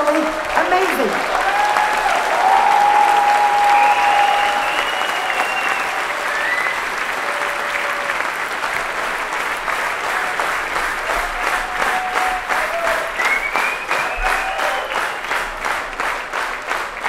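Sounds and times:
crowd applauding: 0.0 - 17.0.

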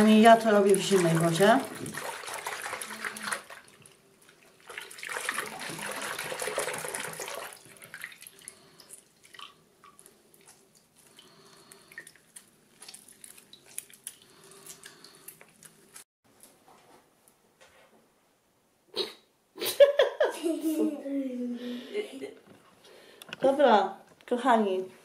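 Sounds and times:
tap water running over hands: 0.0 - 15.4
wet slime clicks and drips: 12.0 - 15.5.

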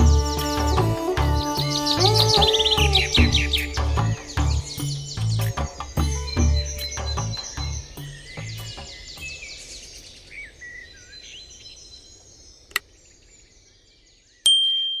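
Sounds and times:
background music: 0.0 - 9.5
birds chirping: 0.0 - 14.4
bright ding: 14.5 - 15.0.

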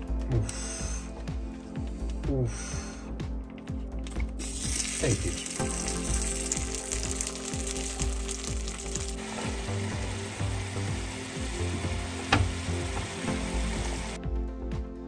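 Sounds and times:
chicken sizzling in frying pan: 4.4 - 14.2.

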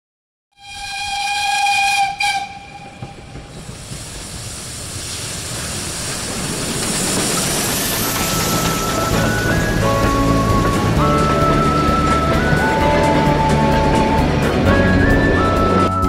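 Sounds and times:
steam locomotive whistle: 0.6 - 3.3, 7.8 - 16.0
locomotive running noise: 0.6 - 16.0
steam hissing: 0.6 - 16.0.

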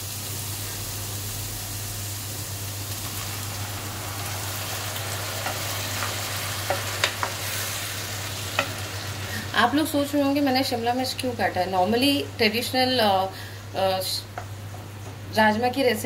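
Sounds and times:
onions sizzling in oil: 0.0 - 12.2.

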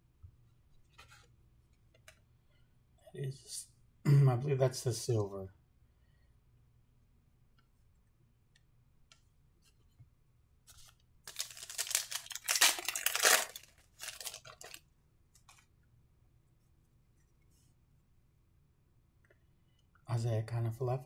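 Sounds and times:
foil wrapper tearing and crinkling: 11.3 - 14.8.

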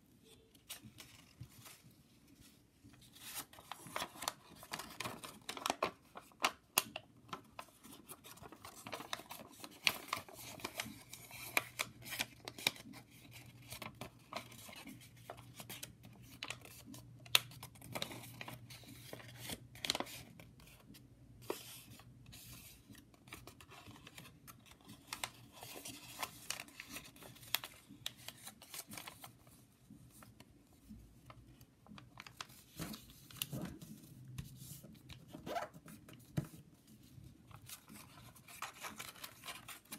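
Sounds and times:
paper crackling and rustling: 0.6 - 39.9.

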